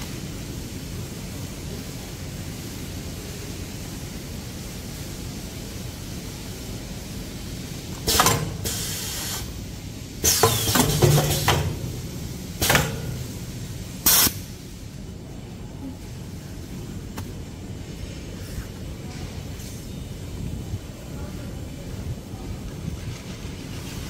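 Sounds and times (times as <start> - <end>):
pneumatic hissing bursts: 7.4 - 15.1
machine hum: 8.0 - 15.2.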